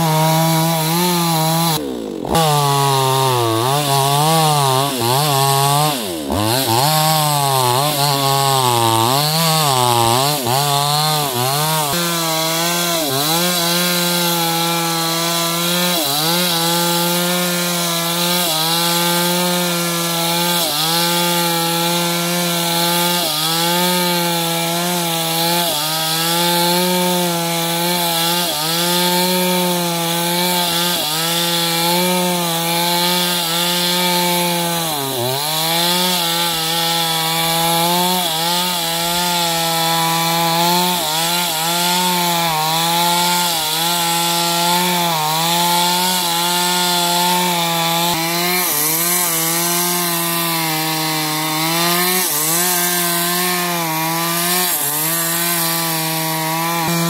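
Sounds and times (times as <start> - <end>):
chainsaw cutting timber: 0.0 - 57.0.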